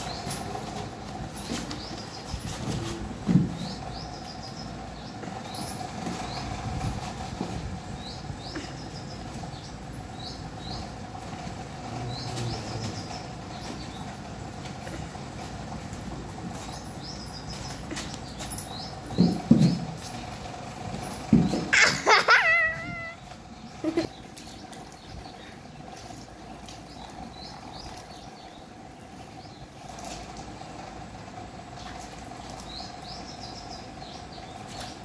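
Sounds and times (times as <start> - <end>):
small birds chirping: 0.0 - 35.0.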